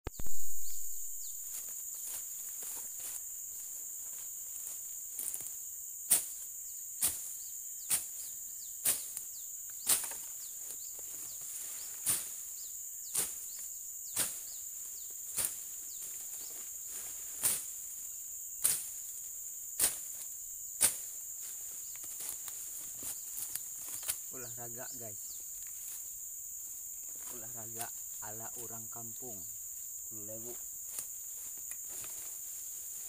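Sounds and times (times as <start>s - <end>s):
high insect drone: 0.1s - 33.0s
machete chopping shrubs: 5.2s - 10.4s, 12.0s - 12.4s, 13.1s - 14.6s, 15.2s - 15.8s, 17.4s - 17.8s, 18.6s - 19.1s, 19.8s - 24.3s.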